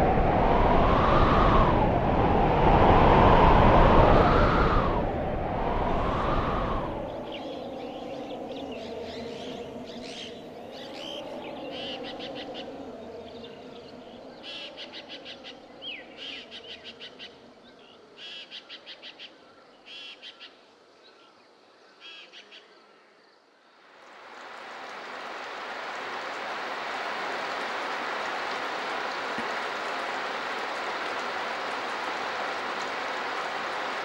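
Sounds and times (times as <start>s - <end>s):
steady hiss: 23.7s - 34.0s.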